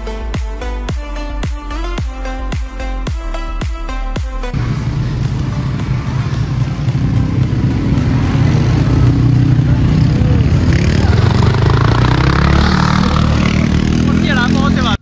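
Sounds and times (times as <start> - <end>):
motorcycle engine running: 4.6 - 15.0.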